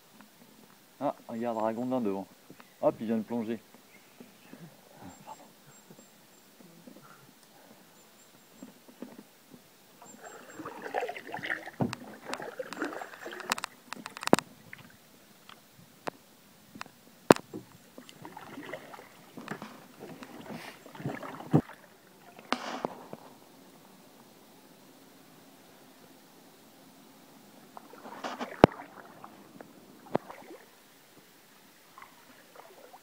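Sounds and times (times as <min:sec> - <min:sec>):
paddle strokes splashing water: 0:09.9 - 0:15.0, 0:17.3 - 0:33.0
paddle knocking against hull: 0:17.3 - 0:23.3, 0:27.7 - 0:30.6.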